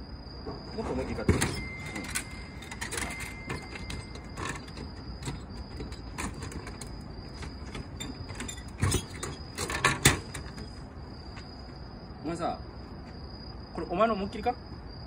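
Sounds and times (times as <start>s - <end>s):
plastic flap rattling and creaking: 0.8s - 10.8s.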